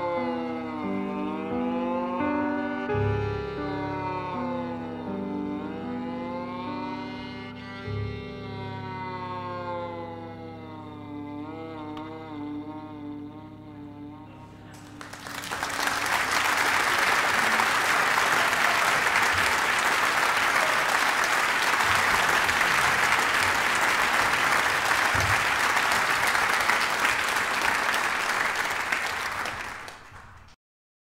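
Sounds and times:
audience applauding: 14.7s - 30.6s.

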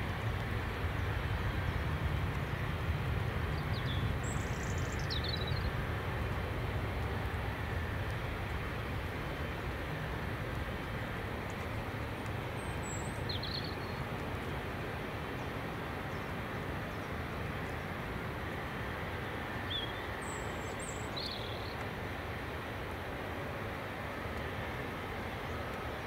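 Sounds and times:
distant jet engines rumbling: 0.0s - 26.0s
bird chirping: 3.6s - 5.7s, 12.6s - 14.0s, 19.7s - 21.8s.

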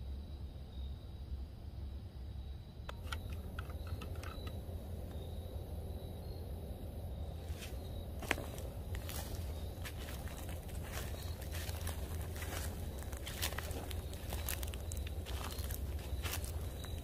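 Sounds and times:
low rumble: 3.3s - 17.0s
footsteps crunching on dry leaves: 7.4s - 17.0s
twigs snapping: 8.2s - 17.0s.

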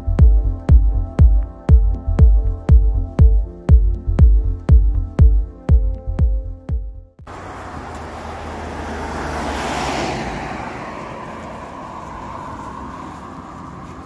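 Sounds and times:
steady traffic hum: 7.2s - 14.0s
car passing close by: 7.3s - 14.0s.

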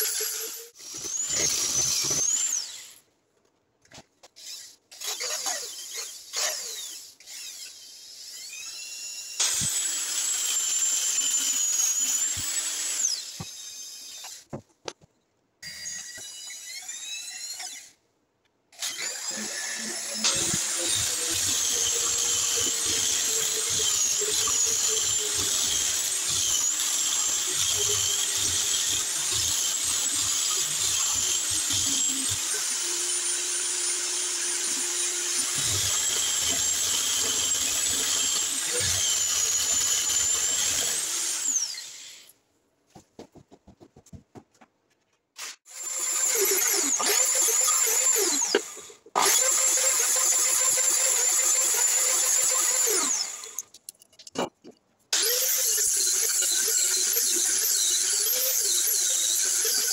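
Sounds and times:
electric drill motor whine: 45.7s - 53.6s.

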